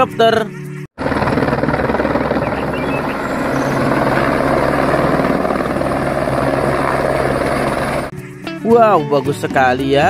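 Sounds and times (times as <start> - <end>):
helicopter engine hum: 0.6 - 8.3
helicopter rotor chopping: 1.0 - 8.2.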